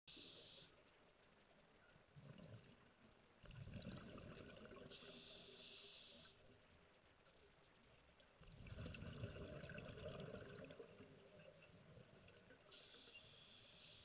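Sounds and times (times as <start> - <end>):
regulator inhalation hiss: 0.1 - 0.7, 4.9 - 6.4, 12.7 - 14.0
exhaled bubbles gurgling underwater: 2.1 - 5.4, 8.4 - 12.8.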